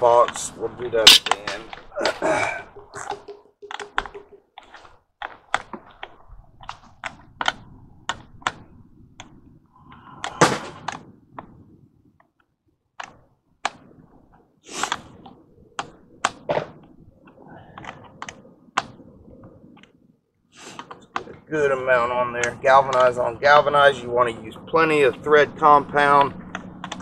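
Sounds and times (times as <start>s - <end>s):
steel pipe and tools clicking: 1.0s - 1.4s.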